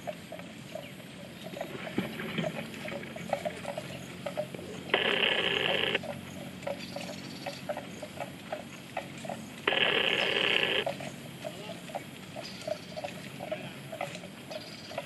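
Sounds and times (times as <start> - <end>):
loud pitched animal call: 4.9 - 6.0, 9.7 - 10.8.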